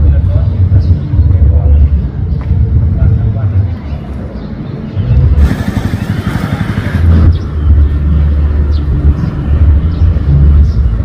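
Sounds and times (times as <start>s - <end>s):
broad rushing noise: 5.2s - 9.8s.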